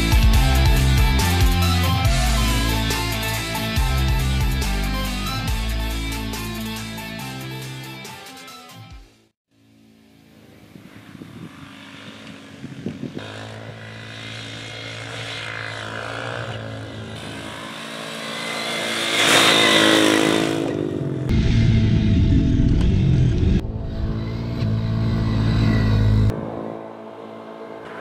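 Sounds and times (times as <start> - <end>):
atv engine revving: 10.4 - 28.0.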